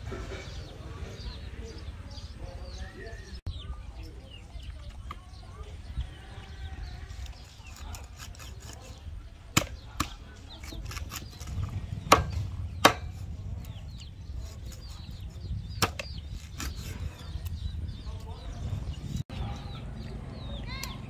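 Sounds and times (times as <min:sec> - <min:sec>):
cleaver chopping fish on board: 0:10.9 - 0:13.2.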